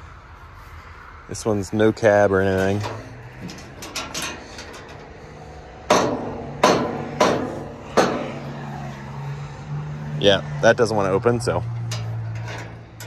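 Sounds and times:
sharp metallic bangs with ring: 5.9 - 8.5.

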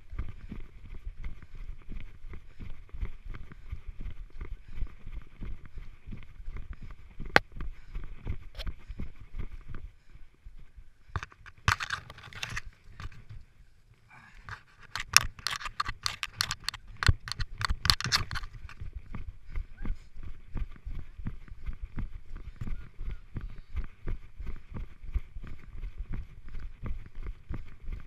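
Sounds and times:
rustling and scraping on grass: 11.1 - 13.5, 14.4 - 19.2
camera brushing the ground: 11.2 - 13.4, 14.5 - 18.9.

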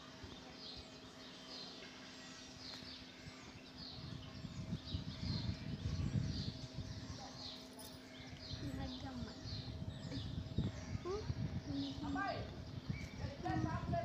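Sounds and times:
low rustling rumble: 8.2 - 14.0.

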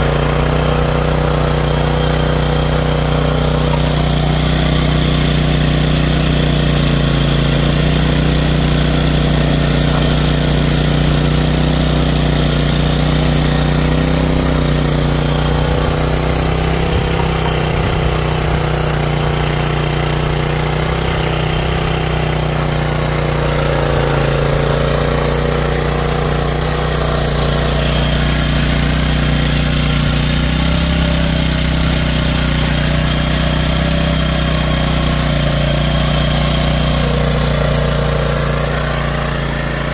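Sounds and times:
small petrol engine running: 0.0 - 39.9
tines churning soil: 0.0 - 39.9.

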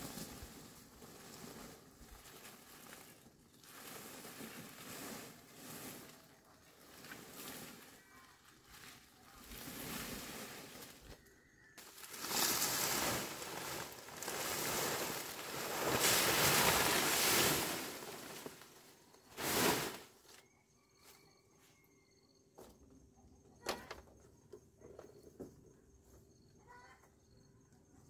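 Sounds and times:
insects chirping faintly: 7.7 - 28.0.

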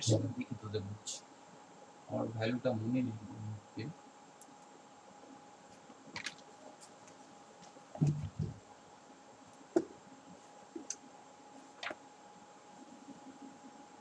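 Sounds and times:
faint clicks and ticks: 10.8 - 11.1.

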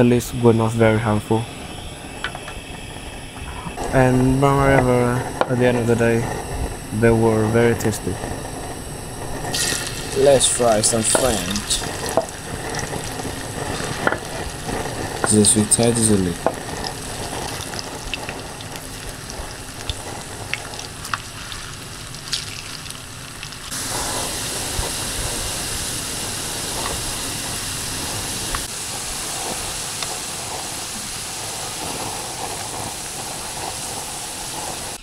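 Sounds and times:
potato sticks sizzling in hot oil: 9.3 - 35.0.

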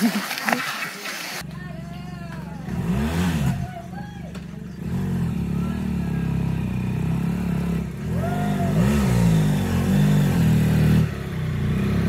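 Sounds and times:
motorcycle engine revving: 1.4 - 12.0.

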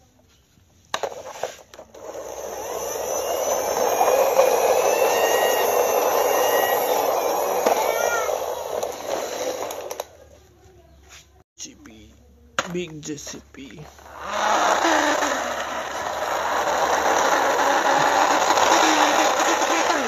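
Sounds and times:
toy truck whirring: 0.9 - 10.3, 13.7 - 20.0.

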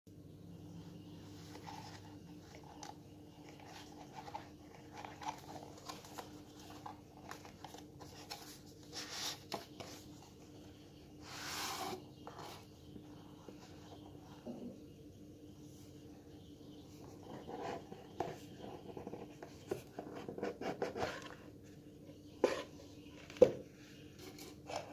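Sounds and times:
cardboard scratching and rustling: 1.4 - 10.4, 17.2 - 21.6.

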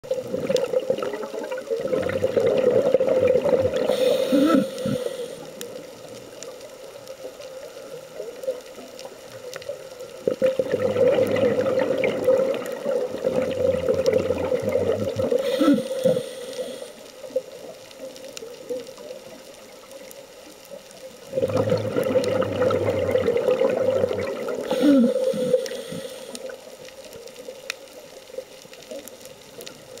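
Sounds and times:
underwater bubbling exhalation: 0.0 - 5.7, 10.2 - 17.0, 21.3 - 26.6
low gurgle: 0.0 - 20.0, 21.2 - 27.6.

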